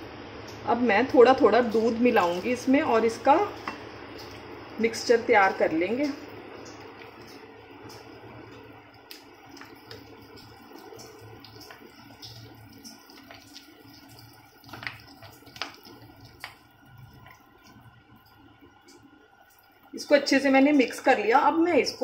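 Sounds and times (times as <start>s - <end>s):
faint steady hum: 0.0s - 22.0s
spoon stirring wet batter: 8.9s - 17.8s.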